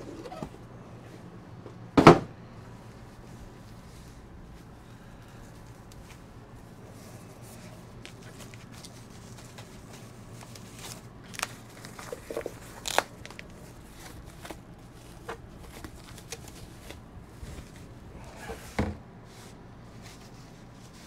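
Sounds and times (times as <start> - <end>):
low steady hum: 0.0 - 21.0
plastic wrap crinkling: 7.5 - 18.3.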